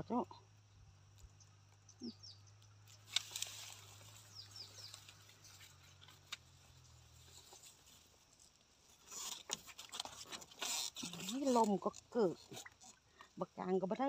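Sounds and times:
faint bird chirps: 0:00.6 - 0:03.1, 0:04.0 - 0:05.8.

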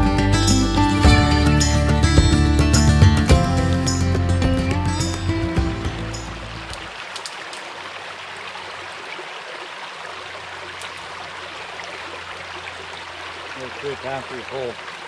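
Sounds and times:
twigs snapping underfoot: 0:06.7 - 0:07.7, 0:10.7 - 0:11.1.

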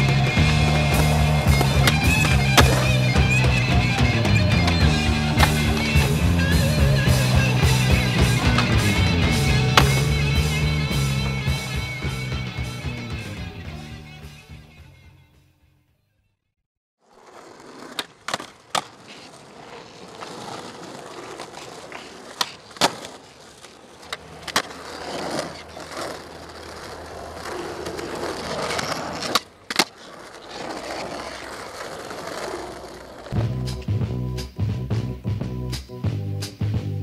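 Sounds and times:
skateboard clacks: 0:00.0 - 0:14.2, 0:17.1 - 0:36.0
skateboard wheels rolling on pavement: 0:00.0 - 0:15.3, 0:17.0 - 0:37.0
music: 0:00.0 - 0:16.4, 0:33.4 - 0:37.0.

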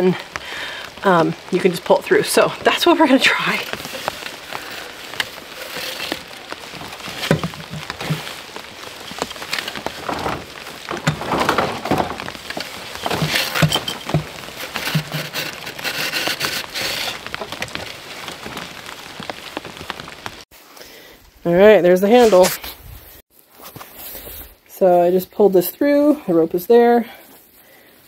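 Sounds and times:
steady rain: 0:00.0 - 0:22.1
pole knocking and scraping: 0:03.6 - 0:20.0.

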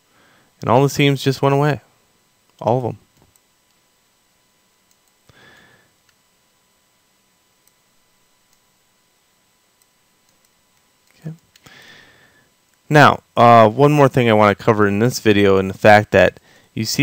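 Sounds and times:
computer mouse clicks: 0:04.8 - 0:05.2, 0:09.8 - 0:11.7.

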